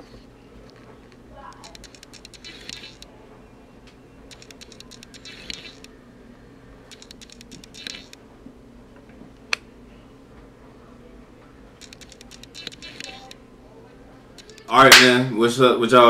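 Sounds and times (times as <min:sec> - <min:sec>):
faint steady hum: 0:00.0 - 0:16.0
rapid light clicking: 0:00.7 - 0:03.1, 0:04.3 - 0:05.9, 0:06.9 - 0:08.2, 0:11.8 - 0:13.4.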